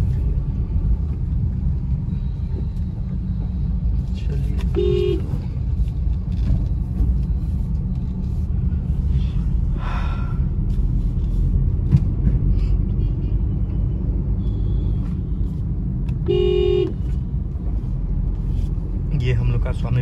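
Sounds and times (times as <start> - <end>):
car engine rumble and road noise: 0.0 - 20.0
faint car horns: 4.6 - 5.4, 16.2 - 17.1
loud vehicle horn: 4.7 - 5.3, 16.2 - 17.0.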